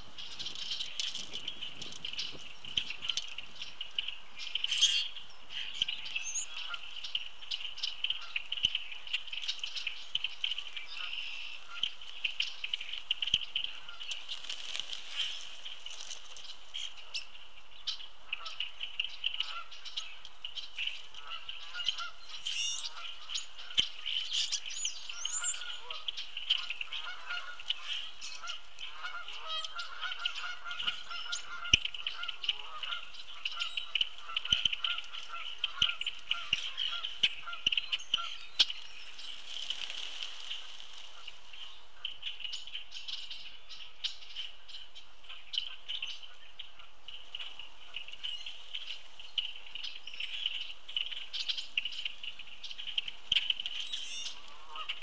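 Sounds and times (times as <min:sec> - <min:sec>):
flock of birds chattering: 0:00.0 - 0:55.0
honking bird calls: 0:04.6 - 0:07.2, 0:07.8 - 0:14.3, 0:16.8 - 0:38.8, 0:45.5 - 0:55.0.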